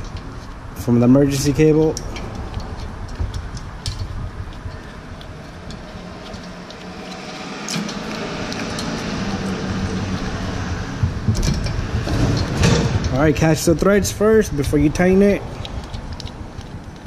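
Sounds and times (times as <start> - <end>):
workshop background hum: 0.0 - 16.0
small metallic clicks: 1.7 - 9.0, 15.5 - 17.0.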